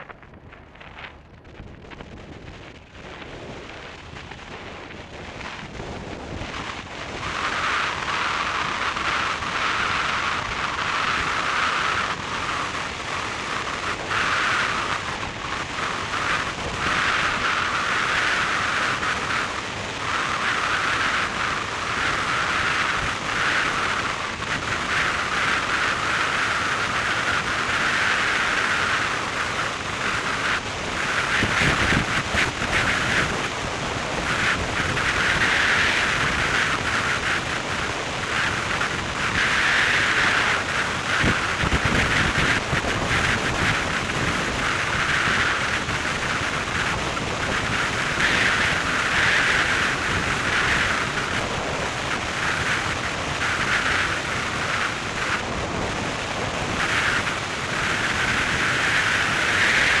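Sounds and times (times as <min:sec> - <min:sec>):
car road noise at speed: 0:00.0 - 1:00.0
wind rushing: 0:00.0 - 1:00.0.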